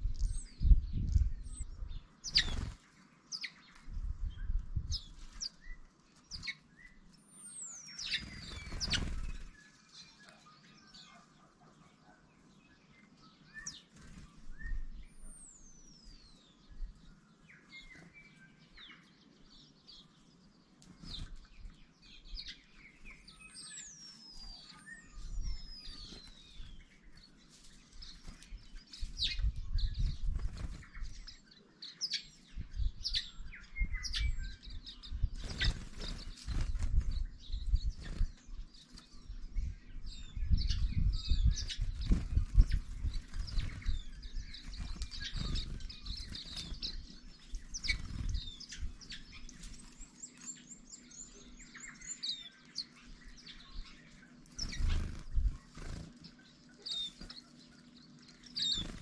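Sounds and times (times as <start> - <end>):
small birds calling: 0.0 - 59.0
sparrows chirping: 0.0 - 59.0
bird wings fluttering: 2.2 - 3.0, 8.0 - 9.6, 27.5 - 31.3, 35.3 - 37.2, 41.4 - 50.0, 54.5 - 56.4, 58.6 - 59.0.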